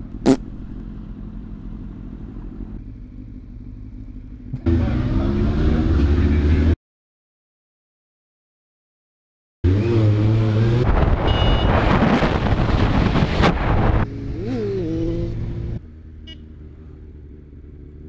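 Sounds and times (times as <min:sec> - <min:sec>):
motorcycle engine: 0:00.0 - 0:06.8, 0:12.7 - 0:18.0
short sharp sound: 0:00.2 - 0:00.5
wind rush on microphone: 0:10.8 - 0:14.1.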